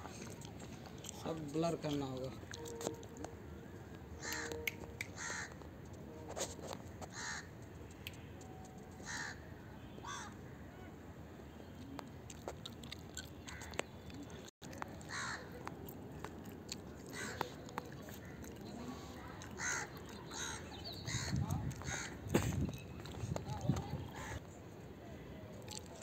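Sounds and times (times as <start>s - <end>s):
crows cawing: 4.2s - 4.6s, 5.2s - 5.6s, 7.1s - 7.5s, 9.0s - 9.4s, 10.0s - 10.4s, 15.0s - 15.6s, 17.1s - 17.5s, 19.4s - 22.2s.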